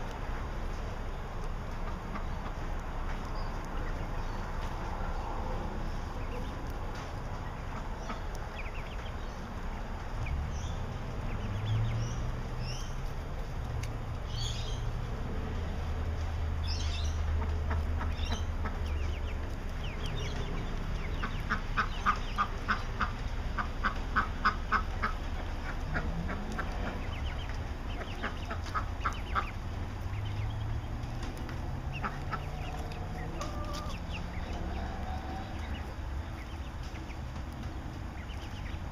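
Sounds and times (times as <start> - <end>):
chickens peeping: 0.0 - 38.9.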